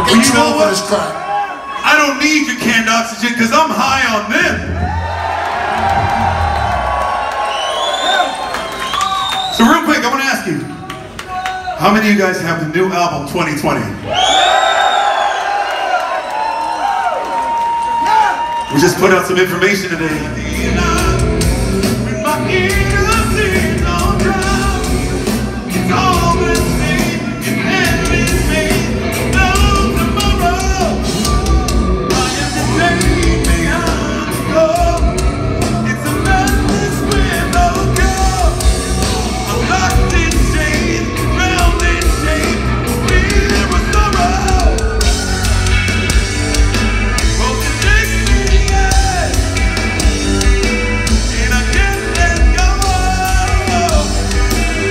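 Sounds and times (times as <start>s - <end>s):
metal band playing live: 18.7s - 54.9s
man singing: 22.0s - 25.0s, 25.8s - 38.6s, 39.2s - 45.0s, 47.3s - 49.5s, 51.0s - 54.9s.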